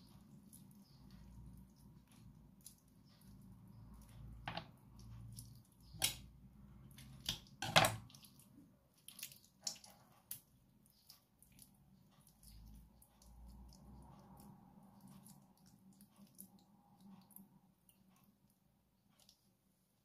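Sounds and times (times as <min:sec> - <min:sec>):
raw meat squished by hand: 0:06.9 - 0:11.7.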